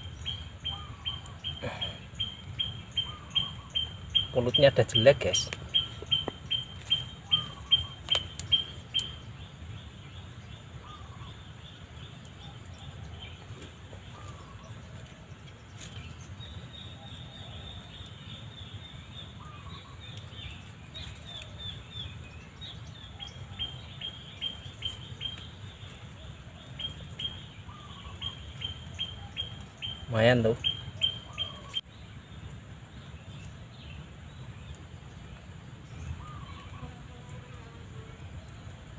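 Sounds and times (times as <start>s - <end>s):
faint lower bird call: 0.0s - 9.2s, 26.5s - 31.9s.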